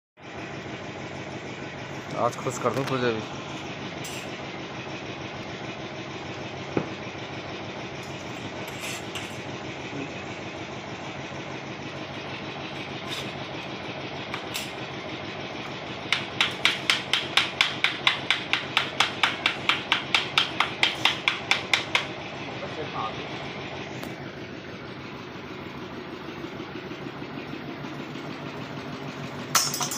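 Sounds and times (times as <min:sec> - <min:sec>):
engine-like drone: 0:00.2 - 0:29.9
hand tool scraping plaster: 0:08.2 - 0:09.4, 0:12.8 - 0:13.4.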